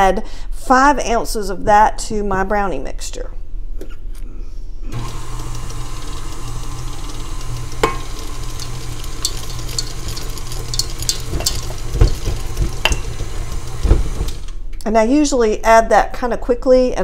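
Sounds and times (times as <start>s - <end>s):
stand mixer running: 4.9s - 14.5s
chocolate chips pattering on metal bowl: 5.4s - 14.3s
heavier knocks: 11.3s - 14.4s.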